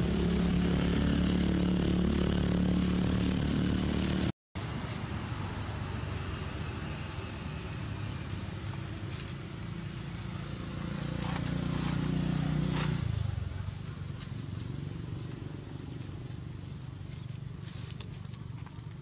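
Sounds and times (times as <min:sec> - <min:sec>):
dry leaves crackling: 0:08.0 - 0:10.5.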